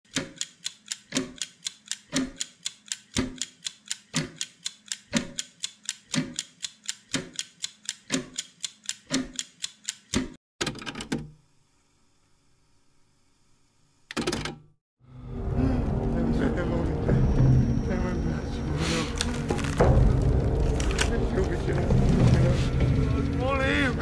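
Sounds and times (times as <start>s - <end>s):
clock ticking: 0.1s - 11.0s.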